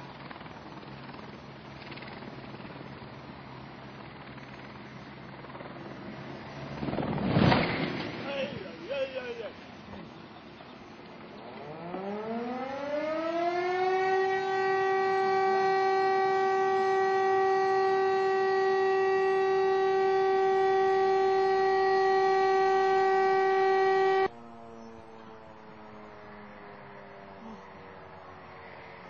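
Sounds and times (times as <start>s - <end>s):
siren wailing: 8.2s - 28.5s.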